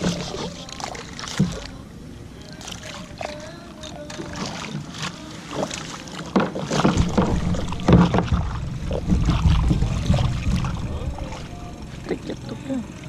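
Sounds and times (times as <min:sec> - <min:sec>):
water splashing: 0:00.0 - 0:13.0
low rumble: 0:06.9 - 0:13.0.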